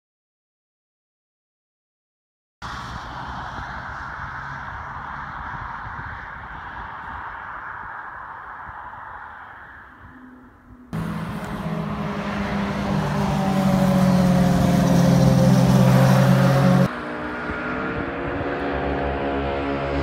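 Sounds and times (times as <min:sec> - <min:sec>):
motorcycle accelerating: 0:09.9 - 0:20.0
motorcycle engine at speed: 0:10.0 - 0:20.0.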